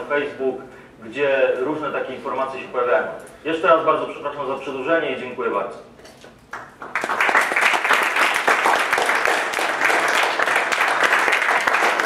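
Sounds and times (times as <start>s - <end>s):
audience applauding: 6.5s - 12.0s.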